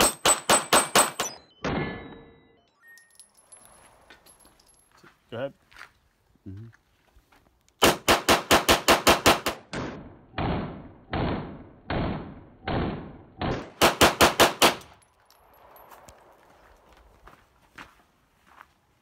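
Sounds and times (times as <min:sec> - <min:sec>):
pistol shots: 0:00.0 - 0:01.4, 0:07.8 - 0:15.0.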